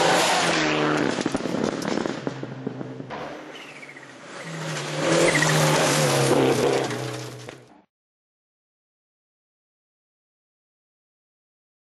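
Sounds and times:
rally car engine at high revs: 0:00.0 - 0:07.5.

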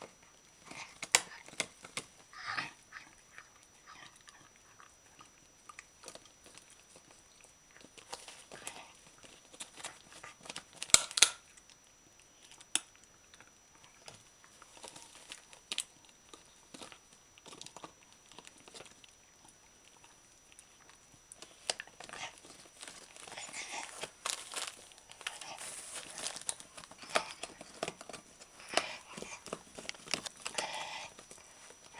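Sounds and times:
dog chewing crunchy bone: 0:00.0 - 0:31.9
wrapper crinkling and rustling: 0:14.5 - 0:19.1, 0:21.3 - 0:31.9.

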